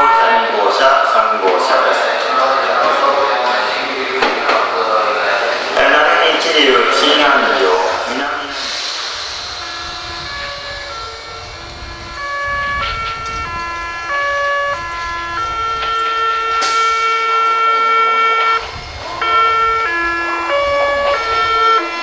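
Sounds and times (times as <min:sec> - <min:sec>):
train horn playing melody: 0:09.5 - 0:22.0.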